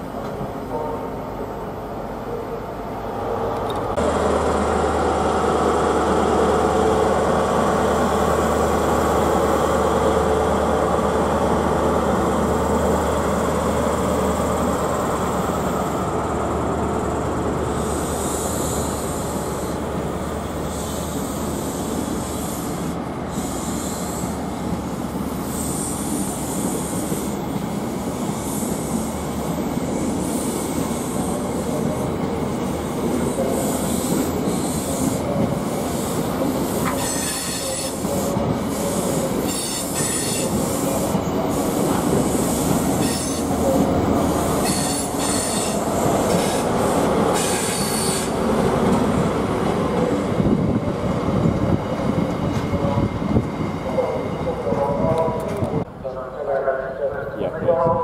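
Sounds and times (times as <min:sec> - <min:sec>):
train wheels rumbling on rails: 0:03.1 - 0:58.0
train wheels squealing: 0:36.8 - 0:43.5, 0:44.4 - 0:46.7, 0:47.3 - 0:48.4.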